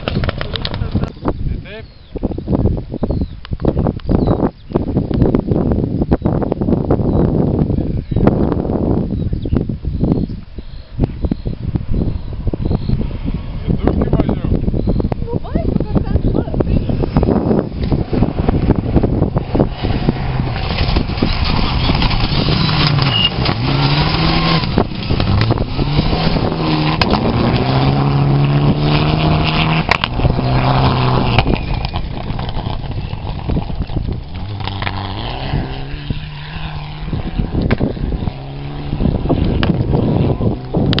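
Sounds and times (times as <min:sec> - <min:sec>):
rally car engines revving: 0:10.9 - 0:41.0.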